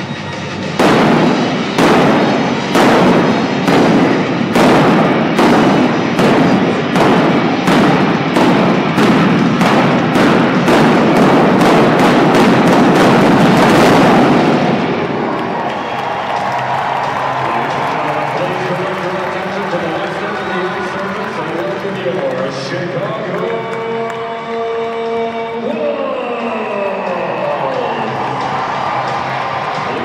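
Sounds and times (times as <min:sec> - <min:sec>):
flame cannon blasts: 0:00.8 - 0:16.3.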